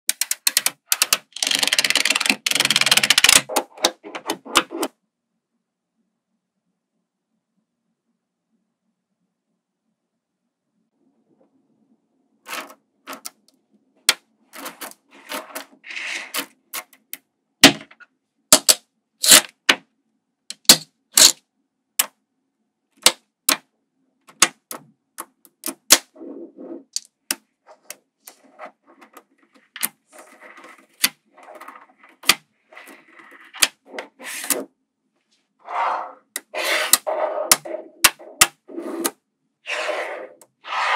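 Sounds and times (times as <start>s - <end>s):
magnetic balls clicking: 0.1s - 4.0s.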